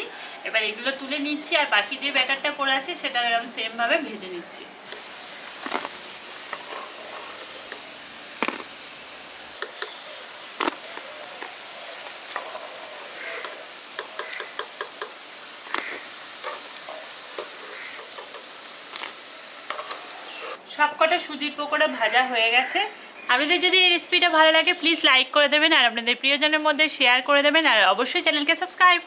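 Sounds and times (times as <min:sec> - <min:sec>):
pakoras sizzling in hot oil: 0:00.0 - 0:20.6
sharp pops and clicks of oil: 0:04.9 - 0:06.7, 0:09.6 - 0:12.6, 0:13.4 - 0:20.0.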